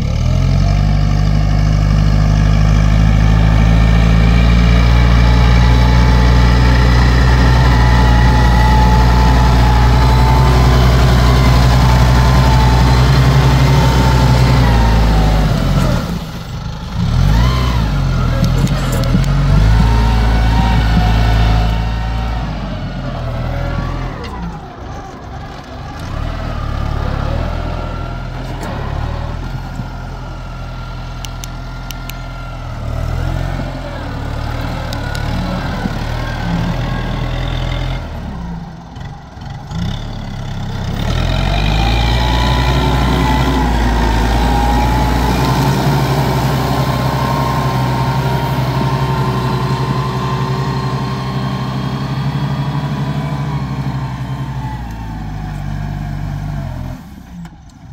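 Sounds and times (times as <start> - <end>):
tractor engine running: 0.0 - 57.9.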